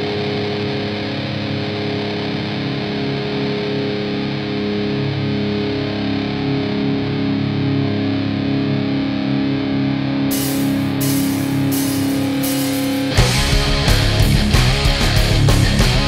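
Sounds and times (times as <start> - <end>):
distorted electric guitar chords: 0.0 - 16.0
cymbal strikes: 10.3 - 16.0.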